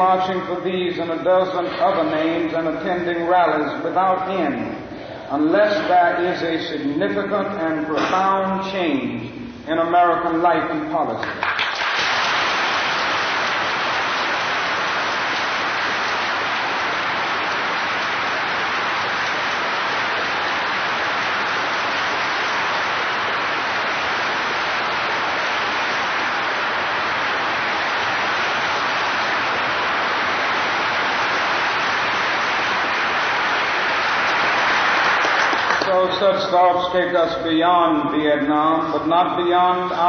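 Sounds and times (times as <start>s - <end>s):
audience applause: 11.2s - 36.1s.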